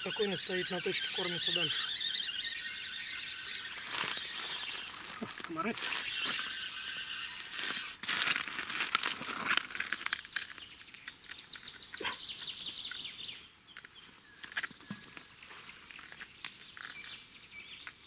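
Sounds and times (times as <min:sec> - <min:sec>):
fishing reel cranking whir: 0:00.0 - 0:08.4.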